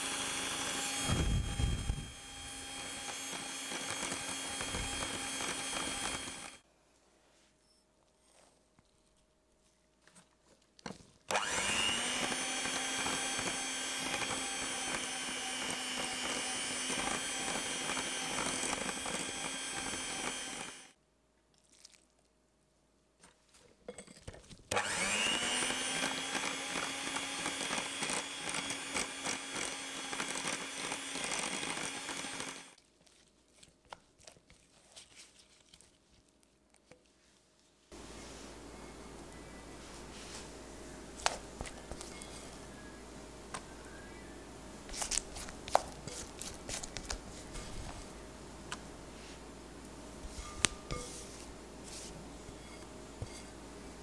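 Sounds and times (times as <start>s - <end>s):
electric hand mixer whining: 0.0s - 6.6s, 11.3s - 21.0s, 24.7s - 32.8s.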